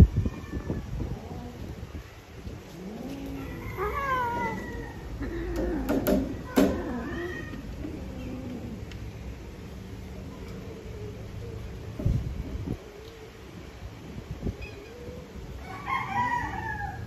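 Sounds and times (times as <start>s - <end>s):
cats yowling: 0.0s - 9.0s, 14.4s - 17.0s
cat meowing: 2.8s - 8.8s.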